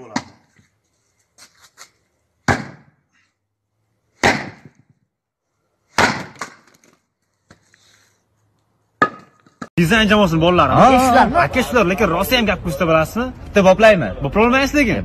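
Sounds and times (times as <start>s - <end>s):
axe chopping wood: 2.4s - 3.0s, 4.2s - 4.9s, 5.9s - 6.8s.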